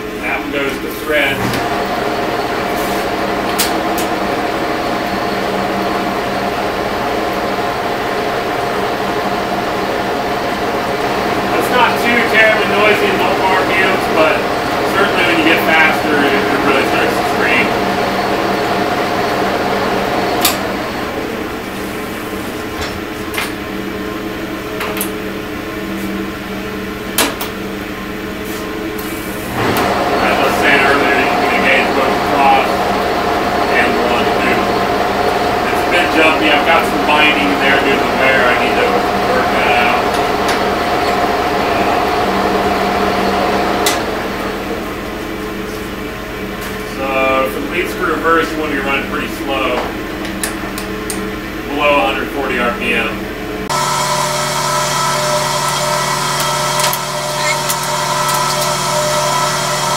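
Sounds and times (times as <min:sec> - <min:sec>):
lathe humming: 0:00.0 - 0:59.9
sharp clicks of controls: 0:55.7 - 0:59.0.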